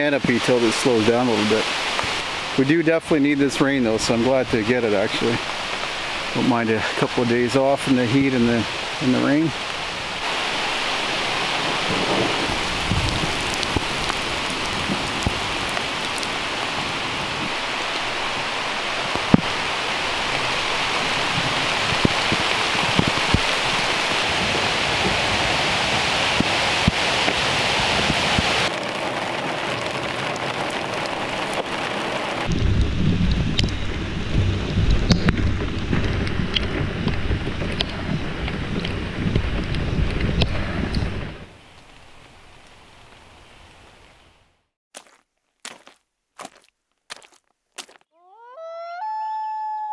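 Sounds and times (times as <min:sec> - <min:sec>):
rain pouring through trees: 0:00.0 - 0:44.7
low rough rumble: 0:32.5 - 0:41.4.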